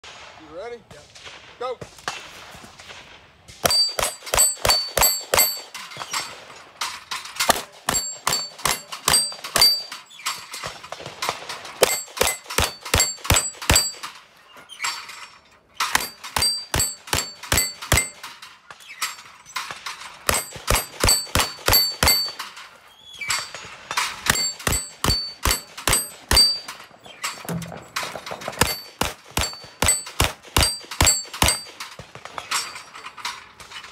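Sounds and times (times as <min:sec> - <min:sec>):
steel targets ringing: 0:03.6 - 0:11.0, 0:11.6 - 0:33.2
pistol shots: 0:15.9 - 0:18.2, 0:24.3 - 0:26.7.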